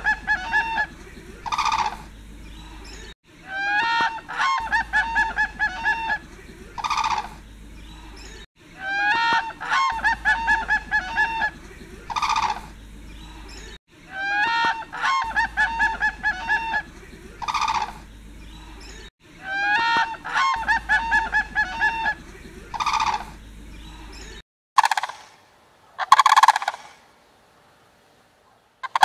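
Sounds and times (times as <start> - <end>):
crane honking calls: 0.0 - 2.2, 3.6 - 7.4, 8.9 - 12.8, 14.2 - 18.0, 19.4 - 23.4.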